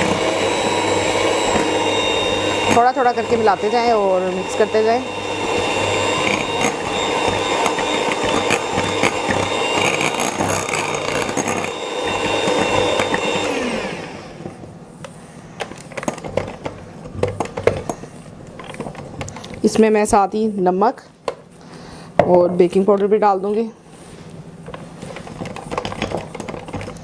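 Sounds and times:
electric hand mixer whirring: 0:00.0 - 0:14.7.

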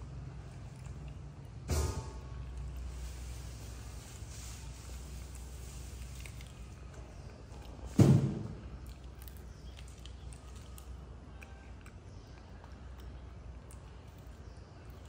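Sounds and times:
low steady hum: 0:00.0 - 0:15.0
loud thump: 0:08.0 - 0:08.5.

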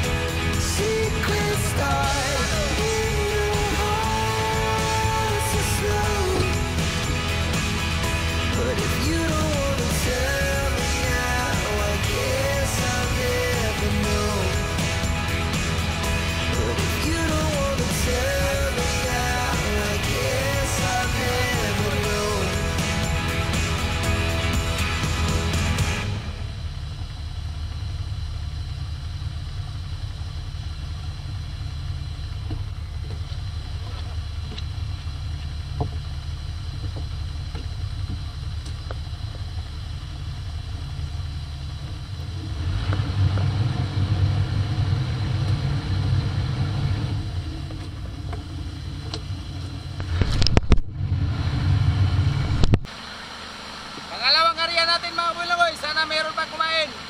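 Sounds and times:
boat engine rumble: 0:00.0 - 0:57.0
wind: 0:26.2 - 0:57.0.

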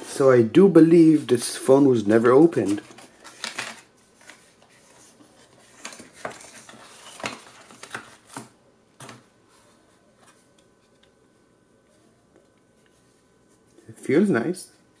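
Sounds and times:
phone packaging clicks and scrapes: 0:05.5 - 0:09.3.

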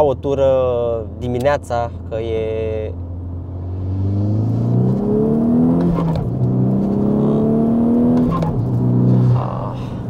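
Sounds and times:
car engine accelerating hard: 0:03.1 - 0:09.8.

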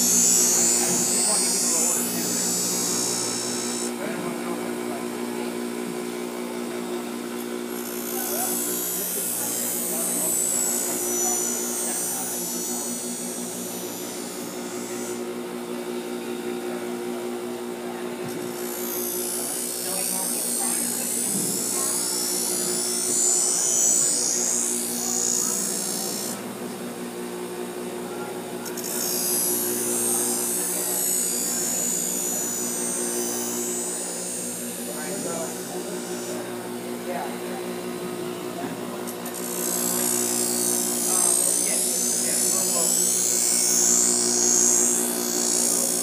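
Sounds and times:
blade grinding hiss: 0:00.0 - 0:04.0, 0:07.7 - 0:15.4, 0:18.4 - 0:26.4, 0:28.7 - 0:36.9, 0:39.2 - 0:46.0
bench grinder motor humming: 0:00.0 - 0:46.0.

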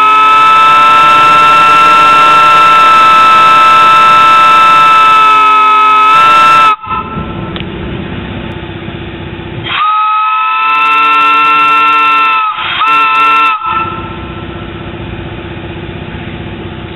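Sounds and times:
steam whistle chord: 0:00.0 - 0:07.5, 0:09.6 - 0:14.5
low mechanical hum: 0:06.8 - 0:10.1.

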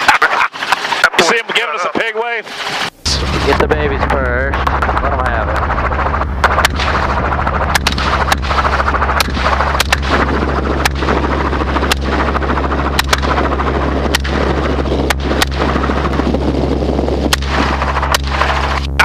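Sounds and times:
helicopter engine and rotor drone: 0:00.0 - 0:19.0
wind rushing past microphone: 0:02.9 - 0:19.0
rifle shots: 0:05.7 - 0:15.8.

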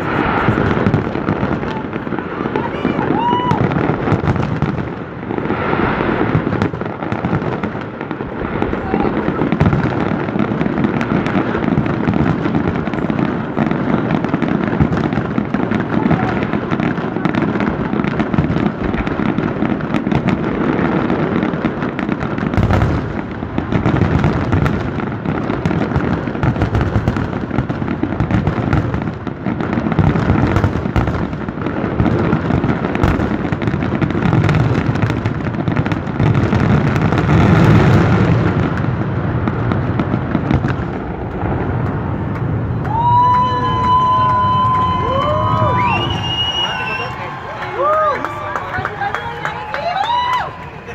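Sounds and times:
fireworks booming and crackling: 0:00.0 - 0:50.9.

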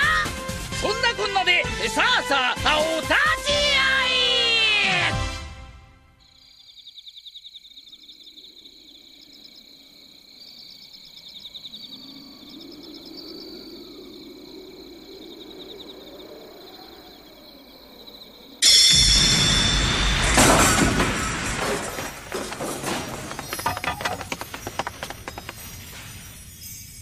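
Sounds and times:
insects chirping in trills: 0:06.2 - 0:27.0.

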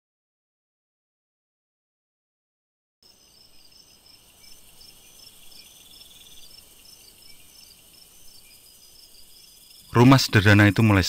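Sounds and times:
crickets chirping: 0:03.0 - 0:11.0.

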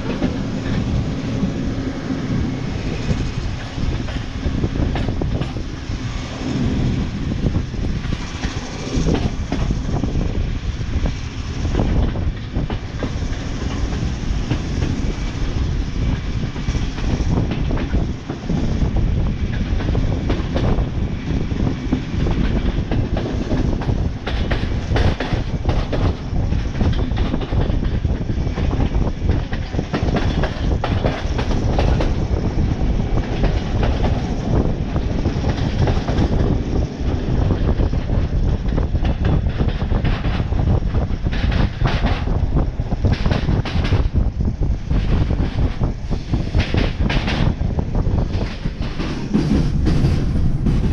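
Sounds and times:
train carriage rumble: 0:00.0 - 0:50.9
wheels clattering over rail joints: 0:19.4 - 0:50.9.

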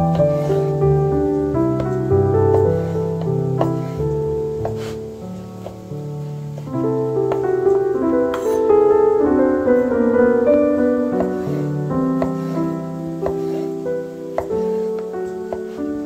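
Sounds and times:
slow piano music: 0:00.0 - 0:16.0
knife cutting on wooden board: 0:04.6 - 0:05.0, 0:08.3 - 0:08.6.

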